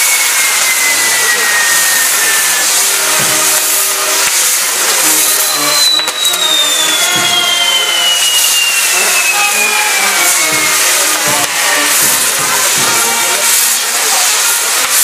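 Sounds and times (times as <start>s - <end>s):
fireworks sparks hissing: 0.0s - 15.0s
fireworks whistle falling: 0.0s - 15.0s.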